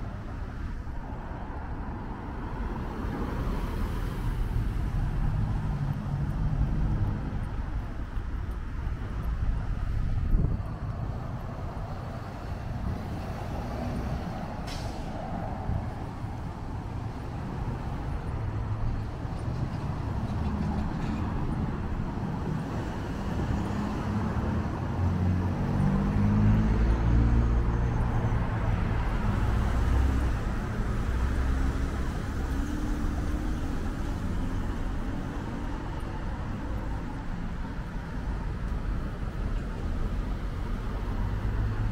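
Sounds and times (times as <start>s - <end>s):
car and truck engines pulling away: 9.6s - 19.1s.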